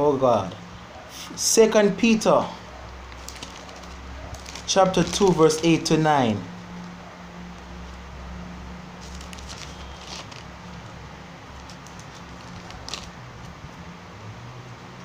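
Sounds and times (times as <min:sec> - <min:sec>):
steady low hum: 0:00.0 - 0:14.9
pages rustling: 0:03.1 - 0:06.0, 0:09.0 - 0:13.6.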